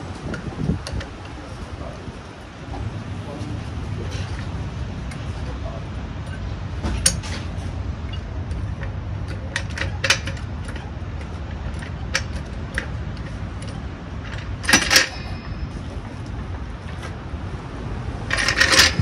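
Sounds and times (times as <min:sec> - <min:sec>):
steady low rumble: 0:00.0 - 0:19.0
hand tools clinking on metal: 0:04.0 - 0:17.2, 0:18.3 - 0:19.0.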